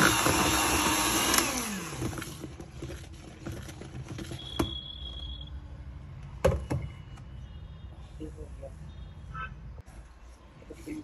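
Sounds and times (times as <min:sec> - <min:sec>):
electric hand mixer whirring: 0:00.0 - 0:02.7.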